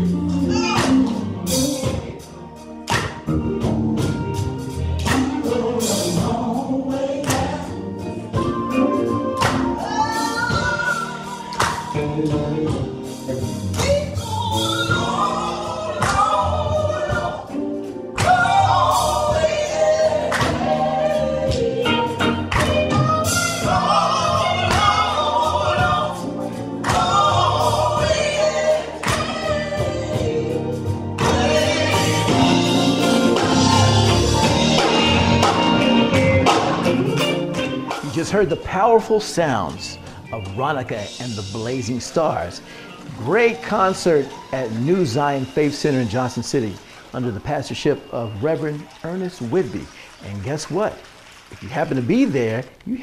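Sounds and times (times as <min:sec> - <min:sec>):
drum kit: 0:00.0 - 0:46.9
keyboard: 0:00.0 - 0:53.0
backing voices singing: 0:05.0 - 0:38.4
woman singing into a microphone: 0:07.4 - 0:12.4, 0:13.8 - 0:32.5.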